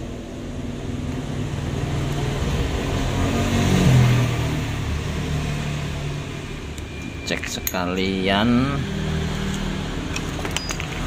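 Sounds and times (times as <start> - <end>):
vehicle engine passing: 1.2 - 6.7, 8.1 - 10.4.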